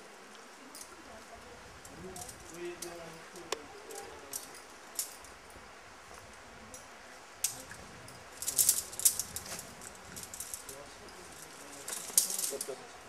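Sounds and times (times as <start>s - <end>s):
steady low hiss: 0.0s - 13.0s
climbing gear clinking: 2.2s - 5.4s, 6.7s - 12.9s.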